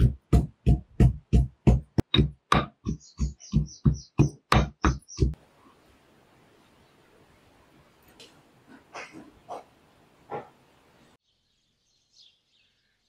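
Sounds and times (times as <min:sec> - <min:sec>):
pestle thudding in mortar: 0:00.0 - 0:05.4.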